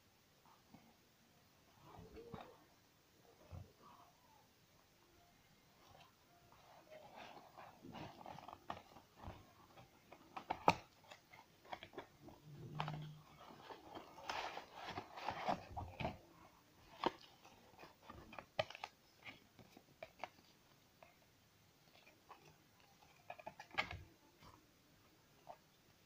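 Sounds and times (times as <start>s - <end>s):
paper rustling: 5.9s - 16.2s.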